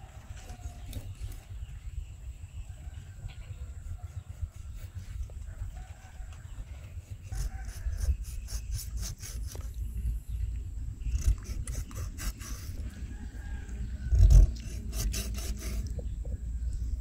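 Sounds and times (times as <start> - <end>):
low rumble: 0.0 - 17.0
cleaver scraping fish skin: 14.5 - 15.9.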